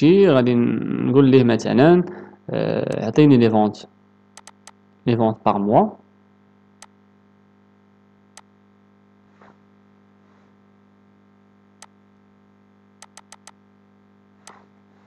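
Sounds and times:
faint electrical hum: 0.0 - 15.0
computer mouse clicking: 4.4 - 4.8, 13.0 - 13.6.

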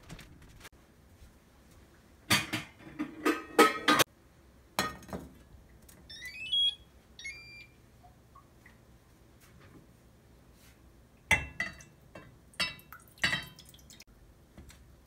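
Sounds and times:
pot clattering on cooktop: 2.3 - 4.1
cooktop control beeps: 6.1 - 7.8.

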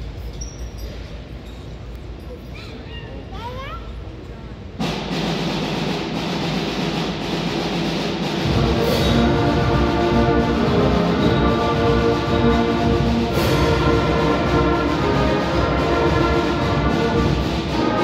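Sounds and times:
concert band playing: 4.8 - 18.0.

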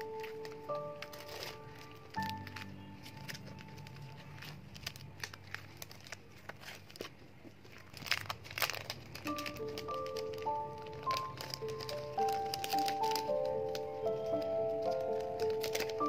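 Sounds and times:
plastic packaging crinkling: 0.0 - 16.0
soft background music: 0.0 - 16.0.

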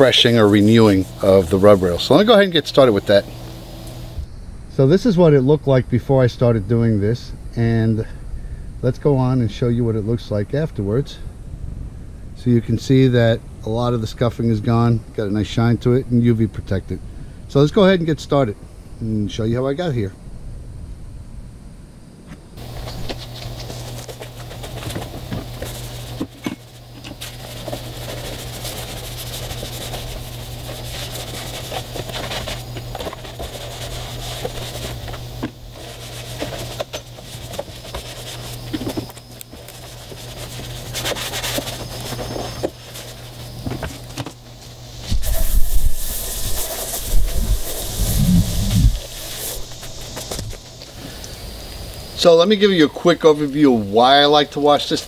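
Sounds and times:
brush scrubbing: 0.0 - 4.2, 22.6 - 50.8
low hum: 20.2 - 52.1
rush of noise: 44.9 - 51.6.

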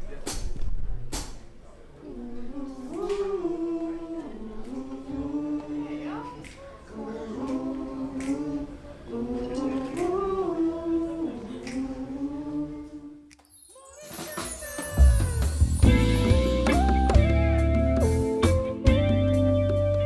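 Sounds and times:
quiet band backing: 0.0 - 13.4, 14.0 - 20.0
voices singing in harmony: 2.0 - 17.8.

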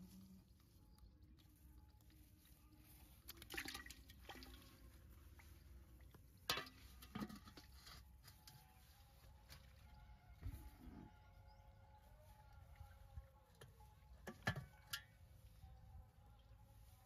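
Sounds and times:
water splashes and drips: 2.9 - 7.8.

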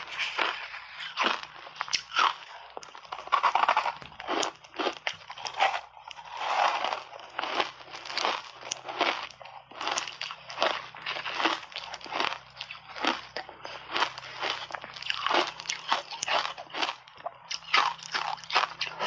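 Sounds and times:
ice crunching while chewed: 0.0 - 19.0
ice grinding between teeth: 0.0 - 19.0.

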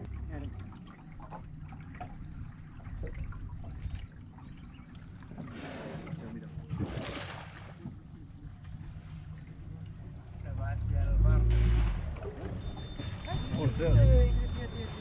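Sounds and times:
boat moving through water: 0.0 - 15.0
animal splashing in water: 5.3 - 8.1, 11.5 - 15.0.

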